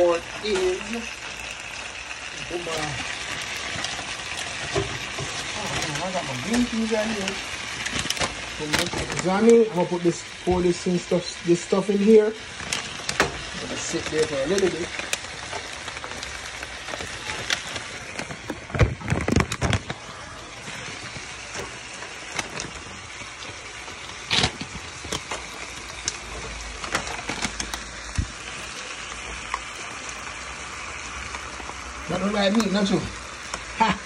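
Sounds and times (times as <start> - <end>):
vegetables sizzling in a frying pan: 0.0 - 34.0.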